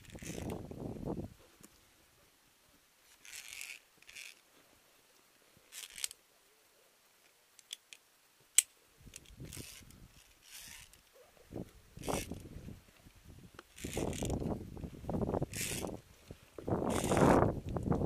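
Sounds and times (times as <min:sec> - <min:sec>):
carabiners clicking on metal: 0:00.0 - 0:00.6, 0:03.1 - 0:04.4, 0:05.7 - 0:06.2, 0:08.6 - 0:11.1, 0:12.0 - 0:12.5, 0:13.6 - 0:14.5, 0:15.4 - 0:16.0, 0:16.9 - 0:17.4.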